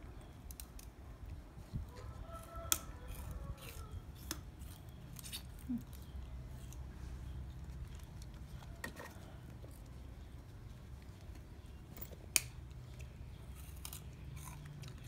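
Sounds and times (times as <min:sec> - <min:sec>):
sugarcane rind snapping: 0:02.4 - 0:06.0, 0:12.3 - 0:15.0.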